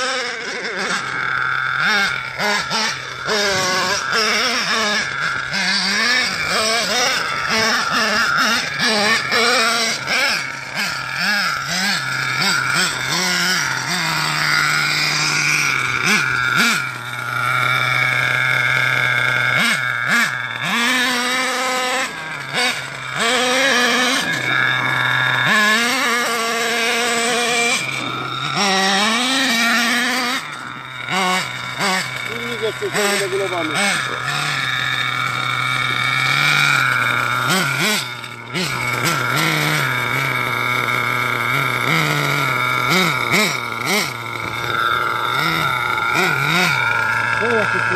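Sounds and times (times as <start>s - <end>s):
small two-stroke engine revving: 0.0s - 47.9s.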